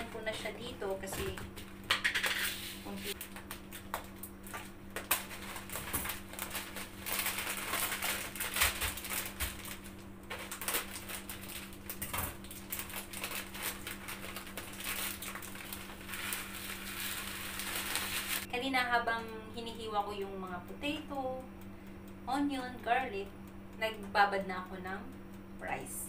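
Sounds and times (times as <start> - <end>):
steady low hum: 0.0 - 26.0
plastic packet crinkling: 3.1 - 18.5
scissors cutting plastic: 3.2 - 18.5.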